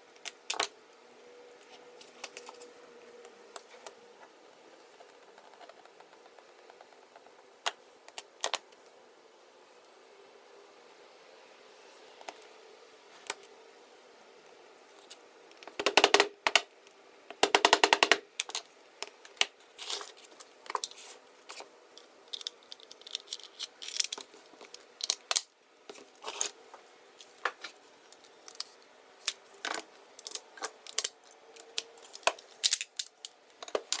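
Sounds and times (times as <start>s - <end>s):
plastic and metal parts clicking: 17.3s - 25.5s.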